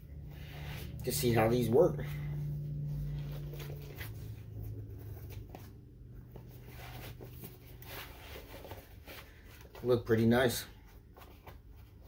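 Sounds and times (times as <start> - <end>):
low hum: 0.0 - 9.5
rustling of neoprene pad: 2.1 - 12.0.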